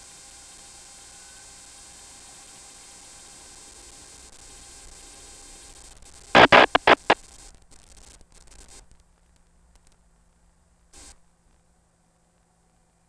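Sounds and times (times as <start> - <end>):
static crackle bursts: 5.9 - 10.0
radio hiss: 6.4 - 7.2.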